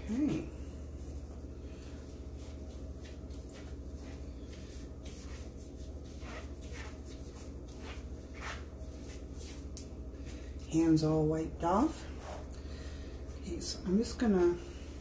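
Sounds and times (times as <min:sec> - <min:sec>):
towel rustling on gloves: 0:00.8 - 0:10.5.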